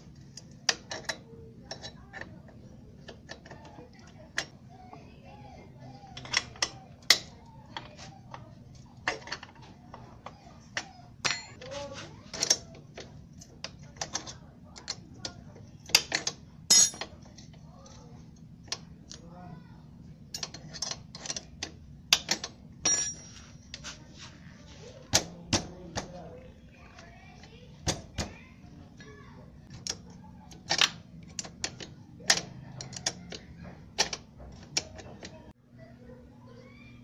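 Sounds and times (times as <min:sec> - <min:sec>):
metal chain clicking and clinking: 0:16.7 - 0:17.1, 0:22.8 - 0:23.4.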